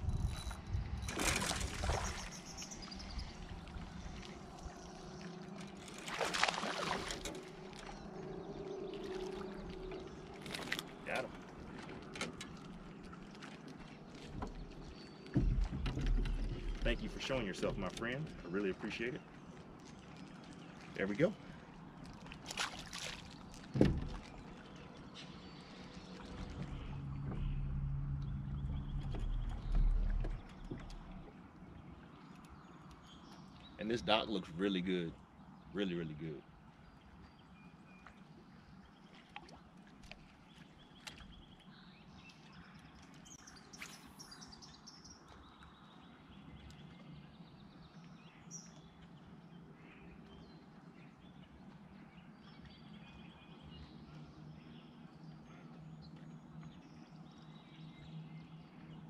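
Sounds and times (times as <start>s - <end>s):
water splashing: 0.0s - 32.4s
fish splashing in water: 1.1s - 8.1s, 22.2s - 24.4s
sharp thump on boat: 15.3s - 16.8s, 23.7s - 24.3s.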